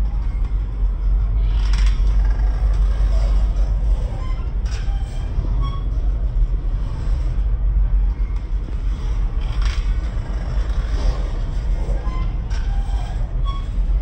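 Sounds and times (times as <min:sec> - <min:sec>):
train wheels rumbling on rails: 0:00.0 - 0:14.0
faint wheel squeal: 0:03.0 - 0:06.2, 0:10.9 - 0:14.0.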